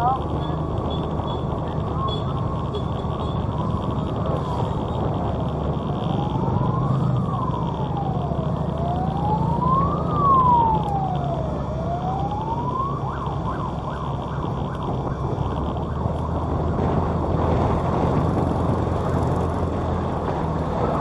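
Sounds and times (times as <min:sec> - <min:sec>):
road noise: 0:00.0 - 0:21.0
siren wailing and yelping: 0:03.4 - 0:16.5.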